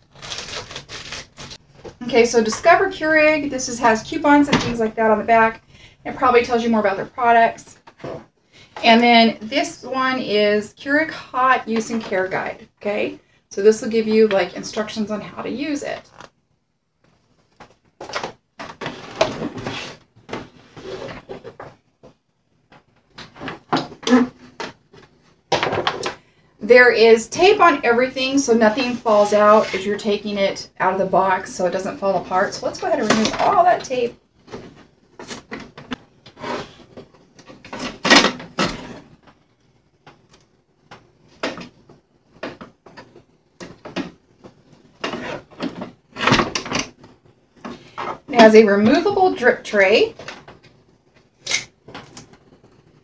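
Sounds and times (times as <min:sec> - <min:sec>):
packing tape ripping: 0:00.0 - 0:01.6
paper rustling: 0:00.0 - 0:01.9.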